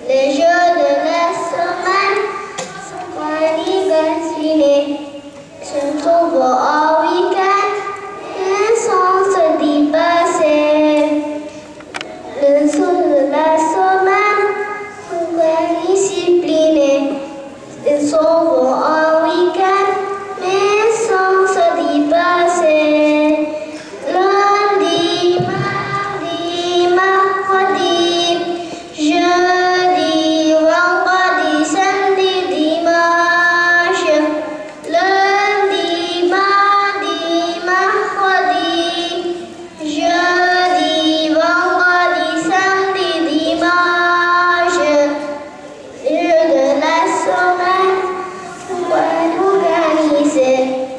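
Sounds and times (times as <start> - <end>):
children singing: 0.0 - 4.7, 15.1 - 45.3, 46.1 - 50.9.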